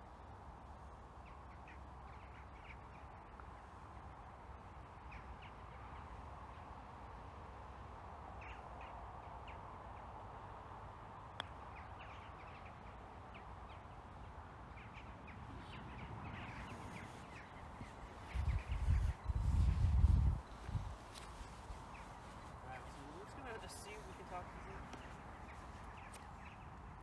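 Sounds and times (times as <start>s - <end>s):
birds calling: 11.4s - 27.0s.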